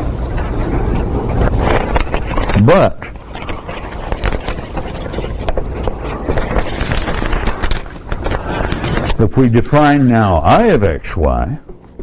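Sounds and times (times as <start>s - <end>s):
crackling microphone noise: 0.0s - 12.0s
small clicks and rustles: 0.3s - 9.2s.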